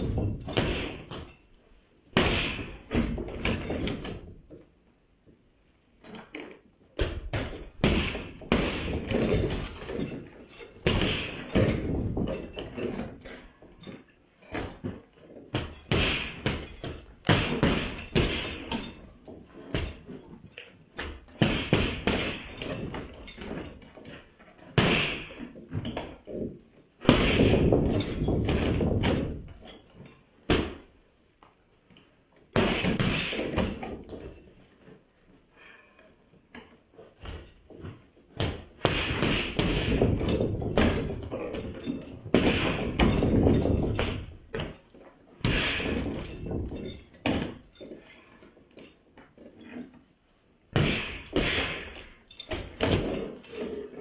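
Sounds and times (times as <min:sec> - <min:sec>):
punches thudding on punching bag: 0:00.0 - 0:01.4, 0:02.2 - 0:04.3, 0:07.0 - 0:13.4, 0:14.5 - 0:20.4, 0:21.0 - 0:23.8, 0:24.8 - 0:26.2, 0:27.0 - 0:29.7, 0:30.5 - 0:30.9, 0:32.6 - 0:34.4, 0:38.4 - 0:44.8, 0:45.4 - 0:47.7, 0:50.8 - 0:53.7.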